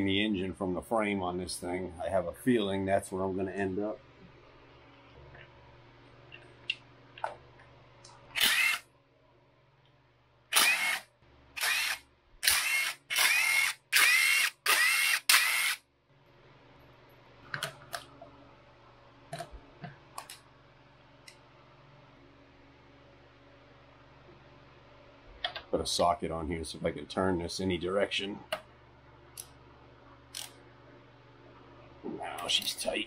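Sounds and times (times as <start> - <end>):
cordless drill whining: 8.4 - 8.8, 10.5 - 11.0, 11.6 - 15.8.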